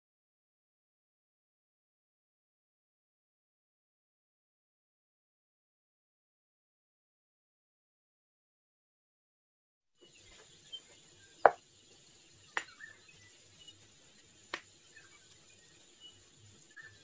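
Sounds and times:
faint steady hiss: 0:10.0 - 0:17.0.

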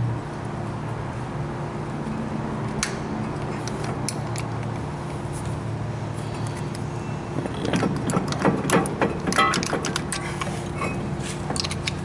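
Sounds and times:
screwdriver metallic clicks and scrapes: 0:03.5 - 0:04.8, 0:09.3 - 0:12.0.

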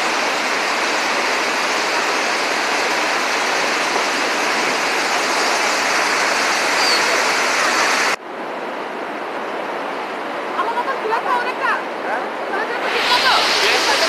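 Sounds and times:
waterfall crashing over boulders: 0:00.0 - 0:08.2, 0:12.7 - 0:14.0.

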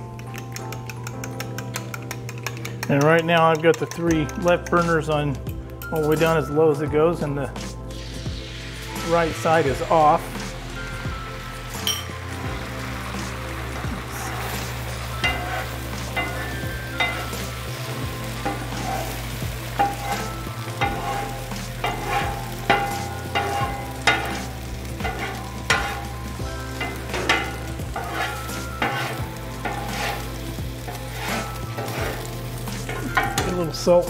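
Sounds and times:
frying sizzle: 0:07.6 - 0:34.0
metal spatula clanking and scraping: 0:11.8 - 0:12.2, 0:13.8 - 0:34.0.

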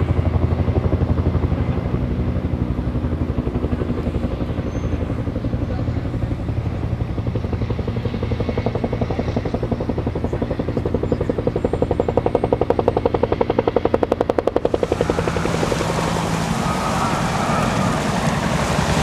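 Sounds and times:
helicopter rotor blades chopping: 0:00.0 - 0:19.0
helicopter turbine: 0:00.0 - 0:19.0.

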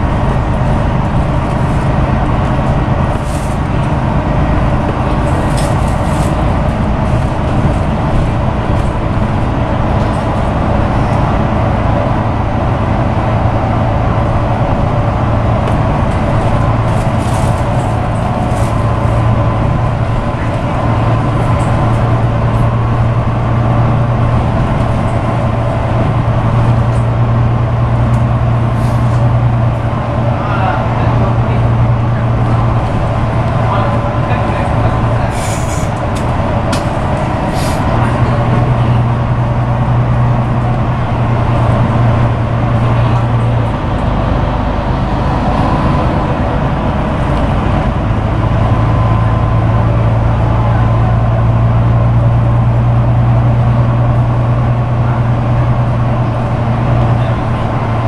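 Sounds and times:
bus diesel engine drone: 0:00.0 - 0:58.0
tyre and road noise: 0:00.0 - 0:58.0
brief clicks from bus body: 0:05.1 - 0:07.9, 0:35.3 - 0:37.9.

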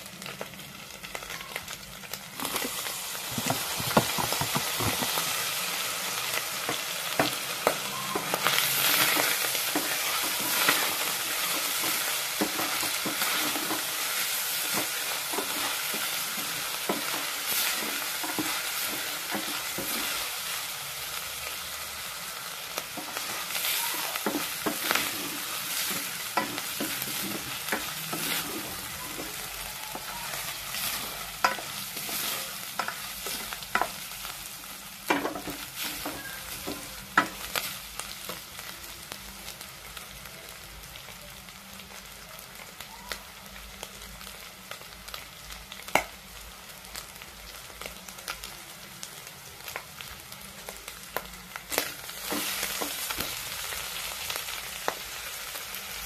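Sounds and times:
meat sizzling in a pot: 0:00.0 - 0:56.0
wooden spoon scraping a pot: 0:24.2 - 0:29.4.

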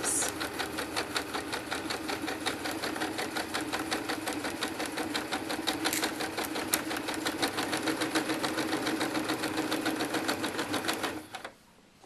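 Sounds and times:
sewing machine motor hum: 0:00.0 - 0:11.6
sewing machine needle clicks: 0:04.4 - 0:07.8.

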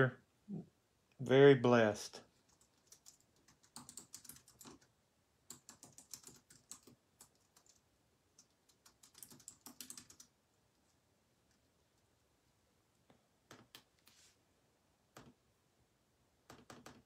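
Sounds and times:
typing on computer keyboard: 0:02.4 - 0:04.9, 0:05.5 - 0:10.3, 0:16.5 - 0:17.0.

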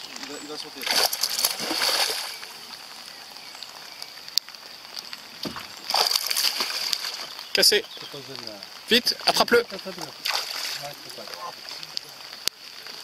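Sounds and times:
fish splashing in water: 0:00.8 - 0:02.8, 0:05.4 - 0:07.4, 0:10.1 - 0:11.4.

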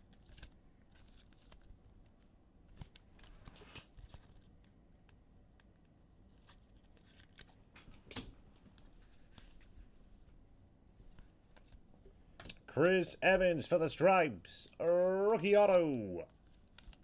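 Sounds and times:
trading cards rustling: 0:00.0 - 0:04.8, 0:05.7 - 0:07.7, 0:14.6 - 0:17.0.

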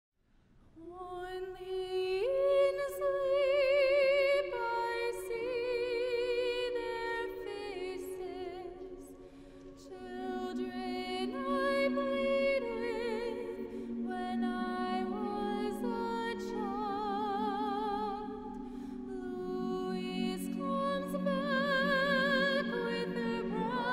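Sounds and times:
choir singing a cappella: 0:09.8 - 0:23.9.

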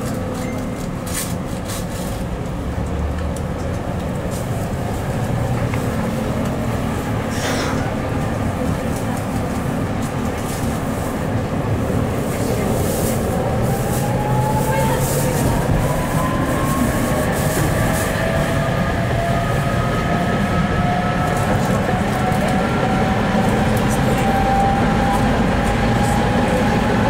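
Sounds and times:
tram wheels rumbling on rails: 0:00.0 - 0:27.0.

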